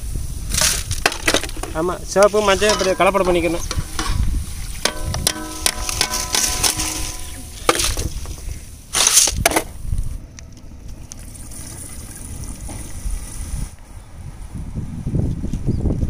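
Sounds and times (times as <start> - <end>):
metal utensils clanking: 1.1 - 9.4
ringing metal strike: 2.6 - 8.2.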